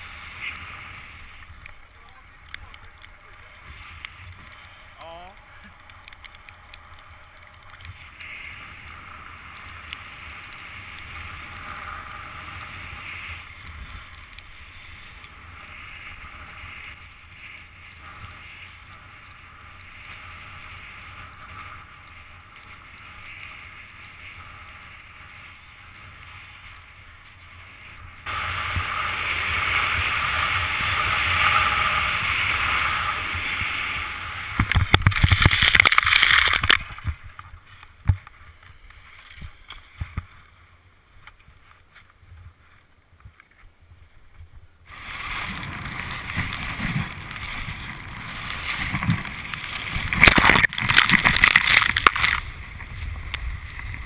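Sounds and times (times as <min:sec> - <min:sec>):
skis scraping over snow: 0:00.0 - 0:44.1, 0:44.9 - 0:54.0
skier crashing into snow: 0:28.2 - 0:37.2, 0:44.9 - 0:54.0.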